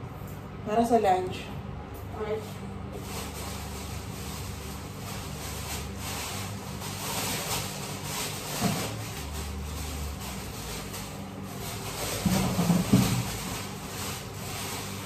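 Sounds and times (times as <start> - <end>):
steady low hum: 0.0 - 15.0
plastic bag crinkling: 3.0 - 15.0.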